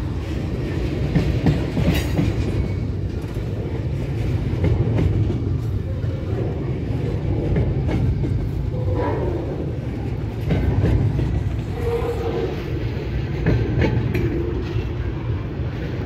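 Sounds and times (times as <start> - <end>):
train cars clanking: 0.0 - 16.0
train wheels rumbling on rails: 0.0 - 16.0.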